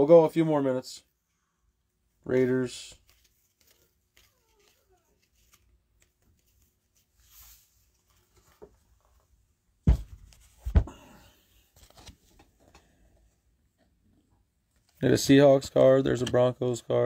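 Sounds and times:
trading cards in plastic sleeves rustling: 0:02.3 - 0:09.0, 0:11.6 - 0:12.8.

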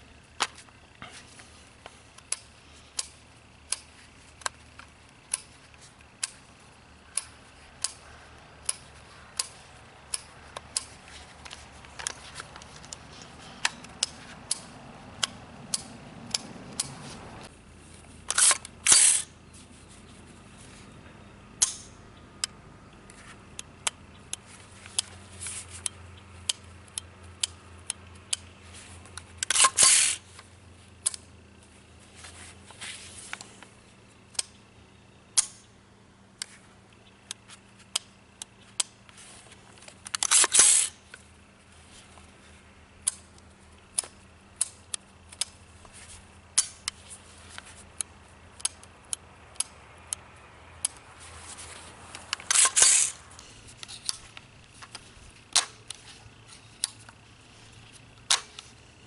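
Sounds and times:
small sharp rifle action clicks: 0:18.3 - 0:19.3, 0:40.0 - 0:41.0, 0:52.1 - 0:56.0, 0:58.2 - 0:58.7.

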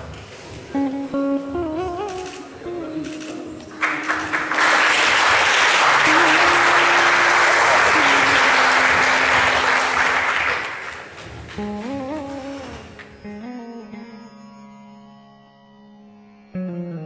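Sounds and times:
soft background music: 0:00.7 - 0:03.8
audience applauding: 0:03.7 - 0:11.3.

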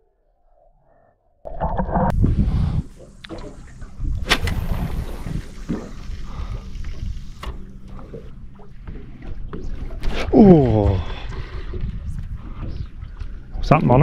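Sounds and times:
wind: 0:01.4 - 0:14.0
water slapping against boat hull: 0:03.3 - 0:06.1.

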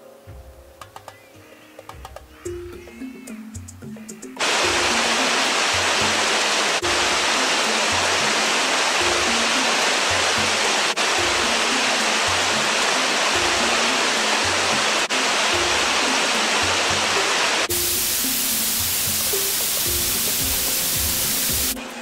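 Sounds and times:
soft background music: 0:00.0 - 0:22.0
water rushing over weir: 0:04.4 - 0:21.8.

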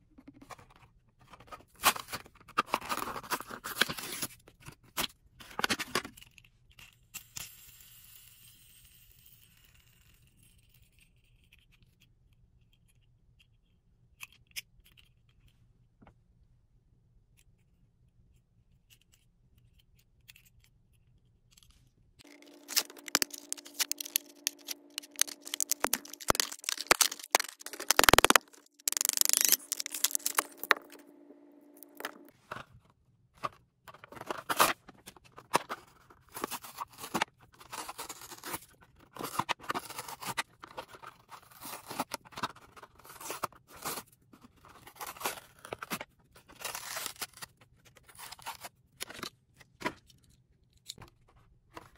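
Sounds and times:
packaging crinkling and tearing: 0:22.2 - 0:31.1, 0:33.9 - 0:44.0, 0:44.6 - 0:49.3
steady low hum: 0:29.5 - 0:32.5.

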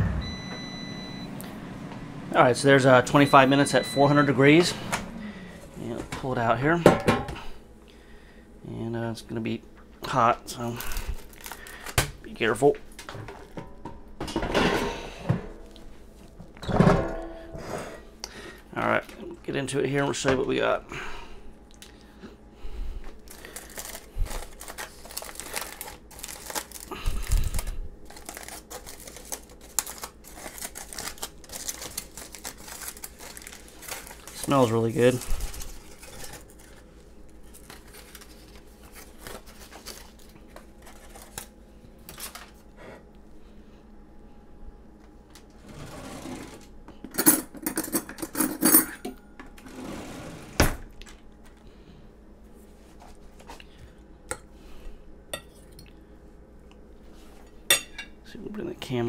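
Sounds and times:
aluminium foil crinkling: 0:10.6 - 0:12.0, 0:23.2 - 0:42.6
cutlery and dishes clattering: 0:47.1 - 0:49.1.

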